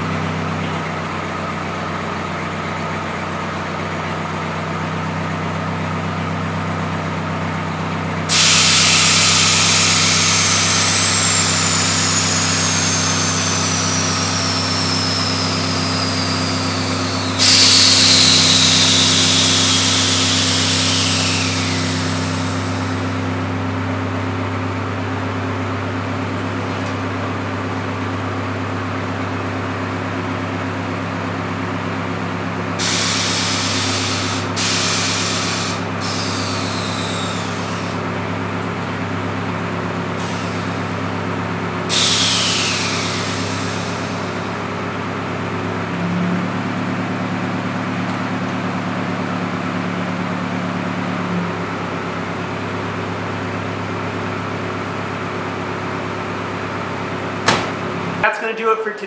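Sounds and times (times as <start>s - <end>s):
low mechanical hum: 0.0s - 58.6s
falling whistle: 8.3s - 23.2s, 32.8s - 38.0s, 41.9s - 44.4s
air valves hissing: 8.3s - 23.6s, 32.8s - 38.4s, 40.0s - 41.2s, 41.8s - 44.9s.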